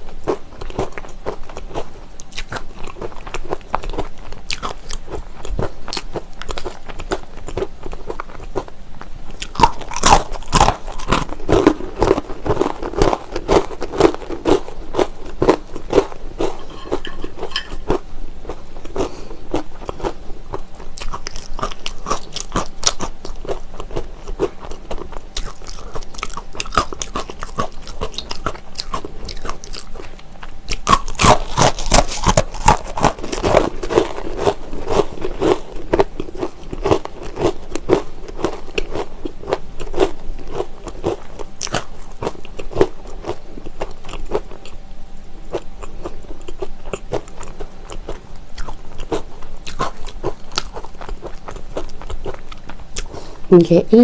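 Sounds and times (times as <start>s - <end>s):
pretzel sticks crunching: 9.4s - 20.2s, 21.0s - 30.1s, 30.7s - 43.4s, 45.5s - 53.3s.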